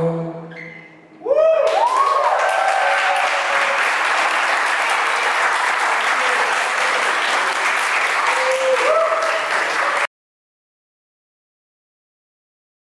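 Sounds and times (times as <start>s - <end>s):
whoops of cheering: 1.2s - 4.0s, 8.2s - 10.1s
audience applause: 1.6s - 10.1s.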